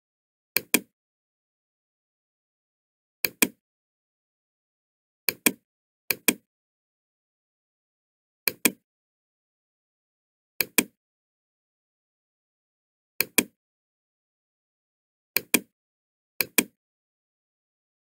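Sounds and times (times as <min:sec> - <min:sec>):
computer mouse double-clicking: 0:00.6 - 0:00.9, 0:03.2 - 0:03.6, 0:05.3 - 0:06.4, 0:08.5 - 0:08.8, 0:10.6 - 0:11.0, 0:13.2 - 0:13.6, 0:15.4 - 0:15.7, 0:16.4 - 0:16.8.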